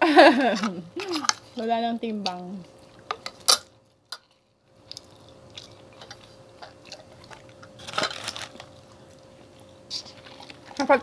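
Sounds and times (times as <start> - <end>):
chewing and mouth clicks: 4.2 - 7.8.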